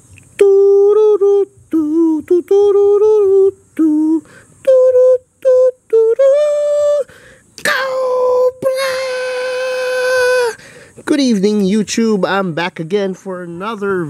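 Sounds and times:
high voice singing: 0:00.0 - 0:10.6.

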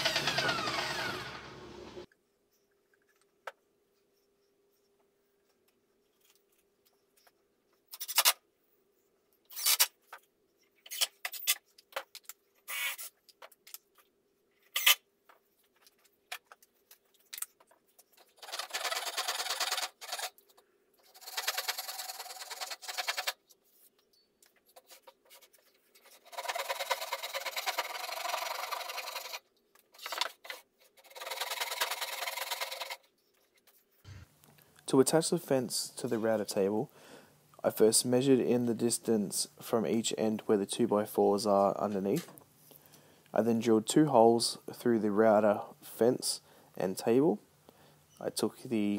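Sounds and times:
small power tool motor: 0:00.0 - 0:02.1.

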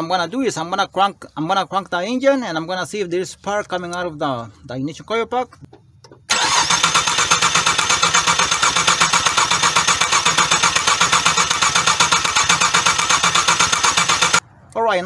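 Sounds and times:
car engine cranking: 0:06.0 - 0:14.4
starter whine: 0:06.0 - 0:14.4.

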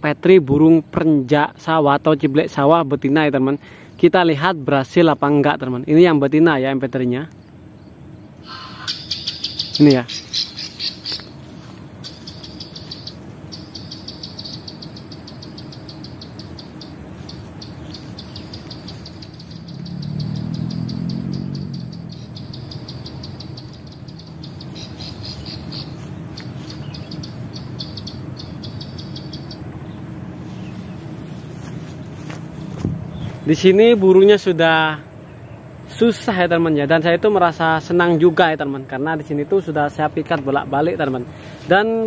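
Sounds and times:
low engine hum: 0:07.4 - 0:41.8
recorded bird call clicking: 0:08.4 - 0:11.4, 0:12.0 - 0:29.9.

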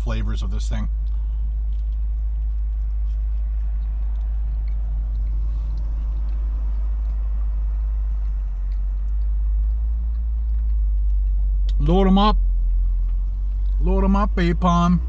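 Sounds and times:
vehicle idling rumble: 0:00.0 - 0:15.0
chewing and eating clicks: 0:01.0 - 0:11.8.

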